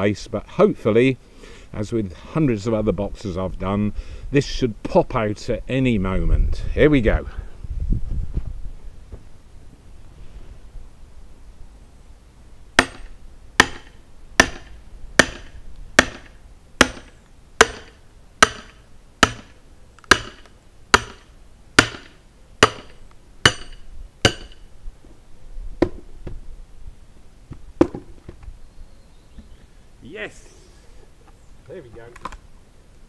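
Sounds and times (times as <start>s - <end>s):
hammer striking steel chisel: 12.8s - 24.6s.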